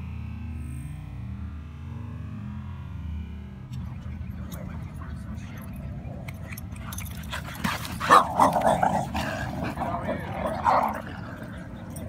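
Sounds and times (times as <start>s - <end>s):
dogs growling: 5.8s - 12.0s
dogs barking: 6.3s - 12.0s.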